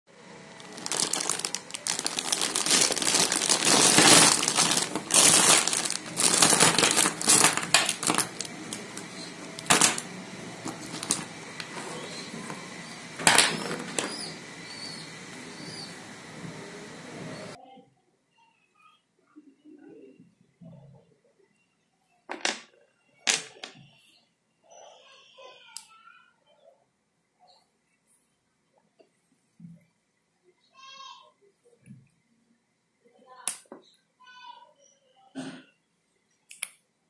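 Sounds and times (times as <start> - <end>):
plastic bag crinkling: 0.6 - 14.3
small metal motors clattering: 0.6 - 15.0.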